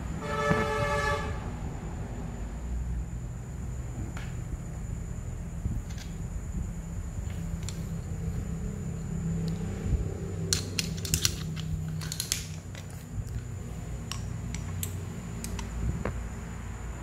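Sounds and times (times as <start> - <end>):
steady low hum: 0.0 - 17.0
metal hand tools clinking: 10.5 - 15.7.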